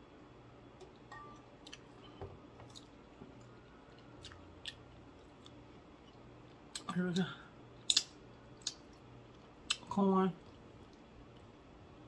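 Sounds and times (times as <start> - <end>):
low steady hum: 0.0 - 12.0
faint chewing mouth clicks: 7.9 - 11.5.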